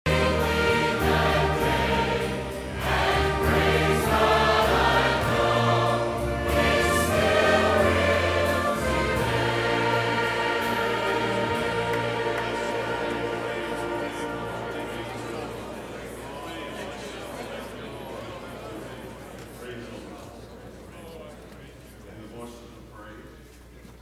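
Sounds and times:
choir singing gospel song: 0.0s - 18.0s.

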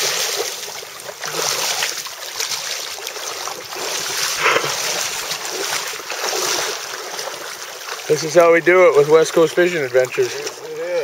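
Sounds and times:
fish splashing at surface: 0.0s - 8.2s
river water rushing: 0.0s - 11.0s.

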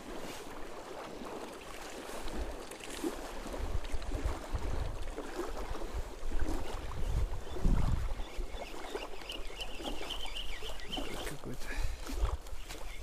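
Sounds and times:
water lapping: 0.0s - 13.0s
wind buffeting microphone: 3.3s - 8.7s.

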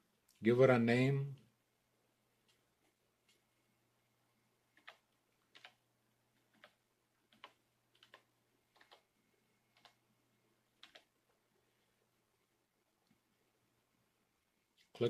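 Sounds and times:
keyboard keystrokes: 4.8s - 5.8s, 6.4s - 9.1s, 10.8s - 11.1s.

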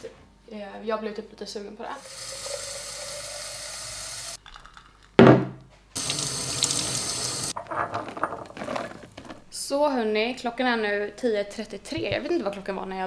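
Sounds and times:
loud thump: 5.2s - 5.6s
tap running over steel sink: 6.0s - 7.6s.

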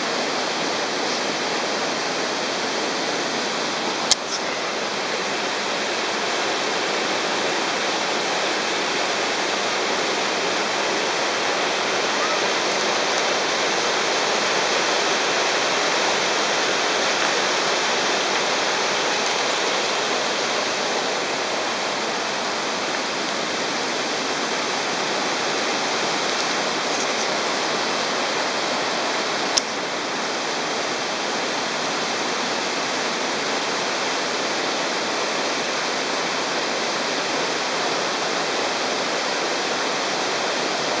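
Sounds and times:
fast-flowing stream water: 0.0s - 41.0s
brief click: 4.1s - 4.4s.

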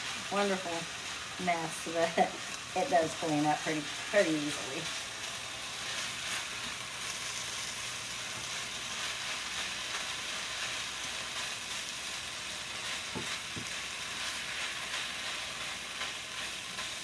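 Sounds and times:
meat sizzling in a skillet: 0.0s - 17.0s.

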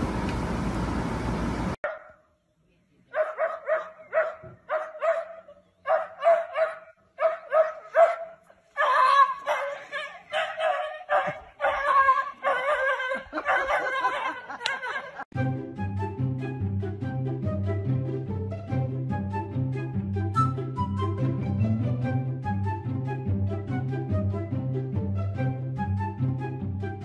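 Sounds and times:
small dog yapping: 3.2s - 12.8s.

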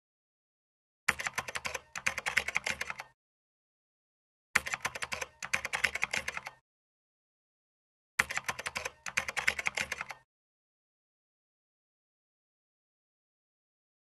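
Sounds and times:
computer keyboard typing: 1.1s - 3.2s, 4.6s - 6.6s, 8.2s - 10.3s.

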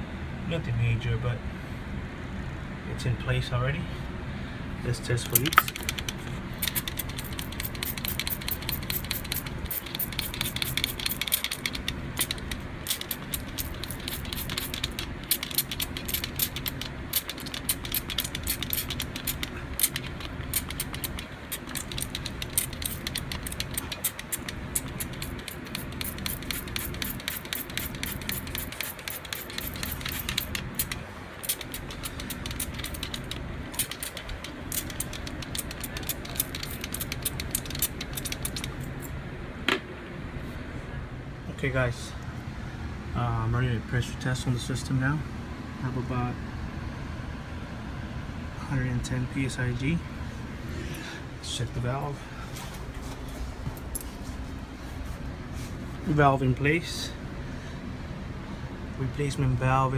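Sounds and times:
steady low hum: 0.0s - 59.9s
spray bottle squirting: 5.3s - 39.0s.

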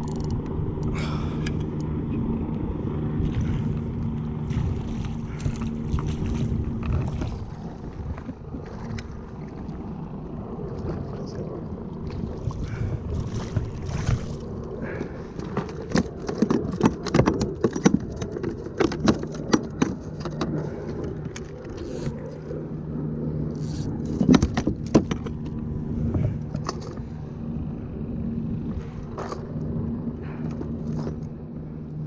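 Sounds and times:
low steady hum: 0.0s - 32.0s
sharp clicks and knocks: 15.5s - 22.2s, 24.0s - 25.6s.

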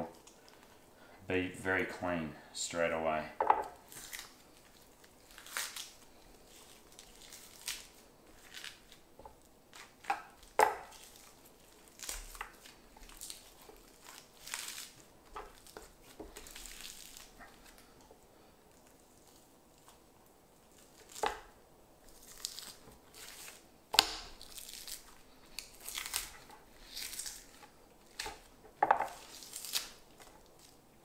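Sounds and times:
meat tearing and rubbing: 3.8s - 30.8s.

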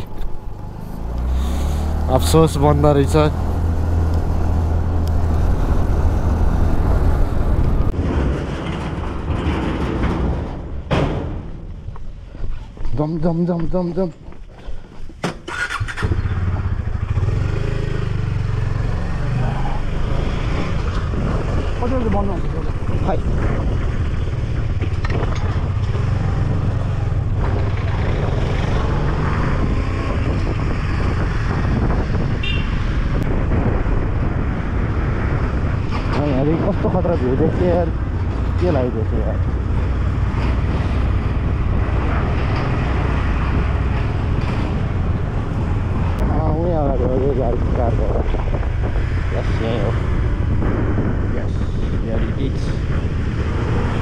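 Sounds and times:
motorcycle engine: 0.0s - 9.9s, 15.3s - 33.2s, 37.3s - 47.5s
wind rumble on microphone: 0.0s - 15.2s, 16.0s - 54.0s.

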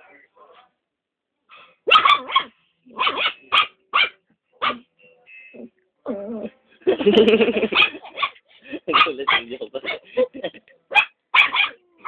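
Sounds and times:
dog barking: 1.5s - 4.9s, 7.6s - 10.1s, 10.9s - 11.8s.

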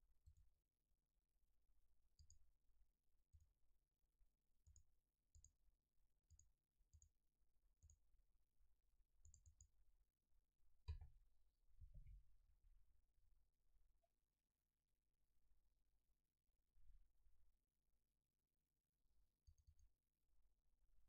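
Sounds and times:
computer mouse clicks: 2.2s - 2.4s, 9.2s - 9.7s, 19.4s - 19.9s.

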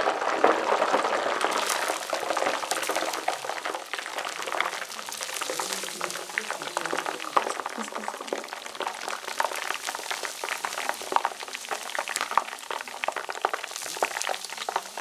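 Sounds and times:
liquid bubbling at the boil: 0.0s - 15.0s.

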